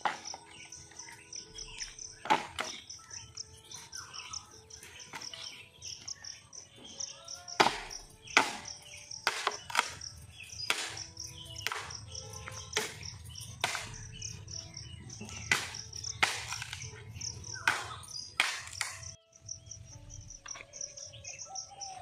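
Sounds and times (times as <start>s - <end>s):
high chirping: 0.0s - 22.0s
dry branches cracking: 7.6s - 14.2s, 15.2s - 19.2s.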